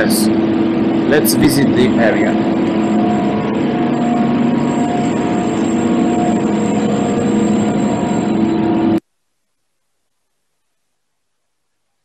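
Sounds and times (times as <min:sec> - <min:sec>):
building machinery hum: 0:00.0 - 0:09.0.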